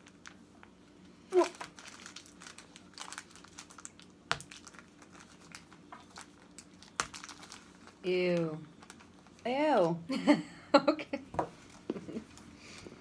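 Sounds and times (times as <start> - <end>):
chocolate wrapper crinkling: 0.0 - 9.5.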